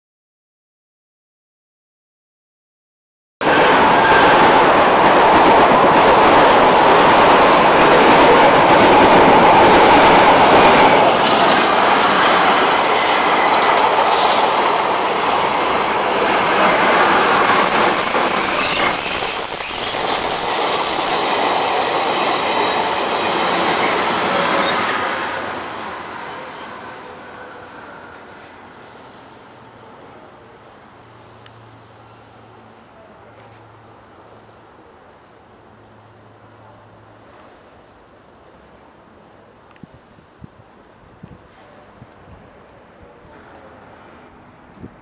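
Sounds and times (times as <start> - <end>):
train wheels rumbling on rails: 3.4 - 30.3
high wheel squeals: 17.1 - 21.3, 22.2 - 25.2.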